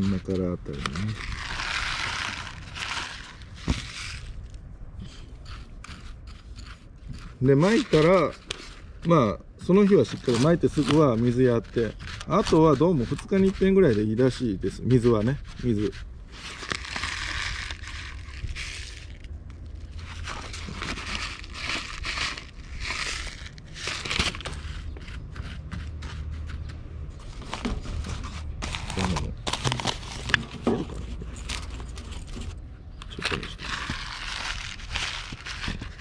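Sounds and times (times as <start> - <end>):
fingers scraping in gravel: 0.0 - 36.0
paper envelope crinkling: 0.1 - 4.5, 9.8 - 13.6, 15.8 - 24.8, 27.3 - 36.0.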